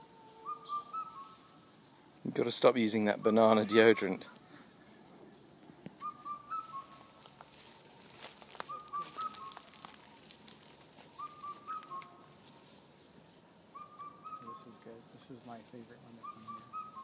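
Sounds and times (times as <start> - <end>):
bird whistling: 0.4 - 1.5, 6.0 - 7.2, 8.4 - 10.3, 11.0 - 12.3, 13.7 - 14.8, 16.2 - 17.0.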